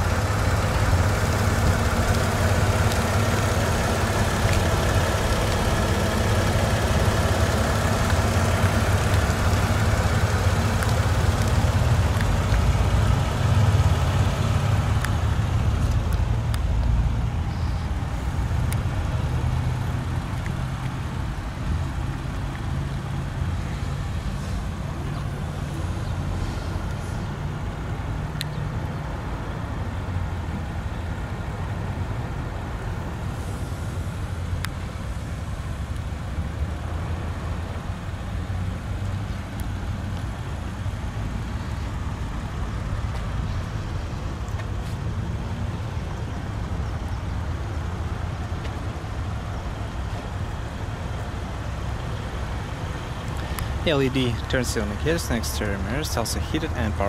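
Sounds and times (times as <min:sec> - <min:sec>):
motor vehicle rumble: 0:00.0 - 0:57.0
faint clicks: 0:53.2 - 0:53.8.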